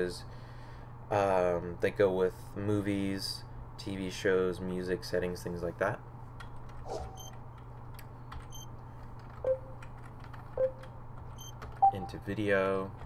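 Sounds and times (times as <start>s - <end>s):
menu blips: 9.4s - 9.8s.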